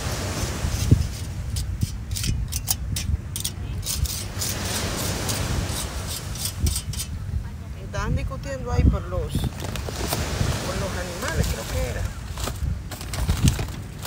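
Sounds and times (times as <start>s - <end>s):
wind rumble on microphone: 0.0s - 14.0s
metal tongs scraping grill grate: 0.7s - 7.2s.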